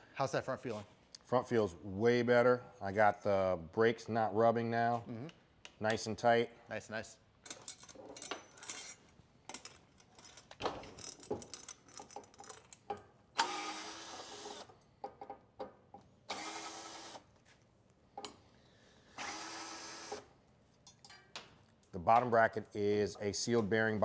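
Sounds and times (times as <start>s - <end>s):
tools clicking and clinking: 7.4s - 13.1s, 20.8s - 22.4s.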